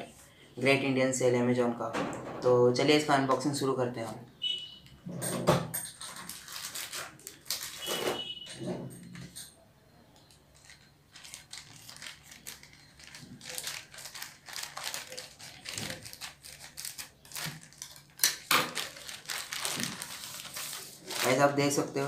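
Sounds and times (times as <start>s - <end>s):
scissors cutting plastic: 5.9s - 8.3s, 10.6s - 21.4s
plastic mailer bag crinkling: 6.0s - 8.5s, 10.6s - 22.0s.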